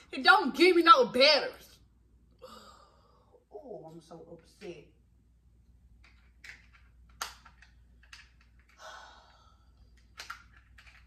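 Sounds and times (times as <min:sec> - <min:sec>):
person sighing: 0:02.4 - 0:03.4, 0:08.8 - 0:09.7.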